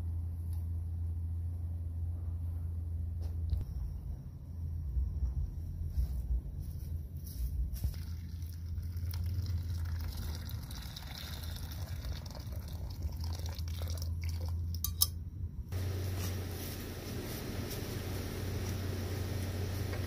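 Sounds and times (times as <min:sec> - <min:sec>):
low steady rumble: 0:00.0 - 0:20.0
water pouring through strainer: 0:07.9 - 0:14.6
metal pot clinking: 0:14.7 - 0:15.2.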